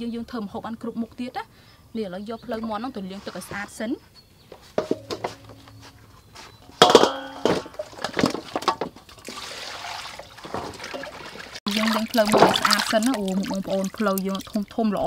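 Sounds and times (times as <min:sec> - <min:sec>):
steel tray clanking on bowl: 0:04.8 - 0:08.9
water splashing in bowl: 0:06.9 - 0:15.0.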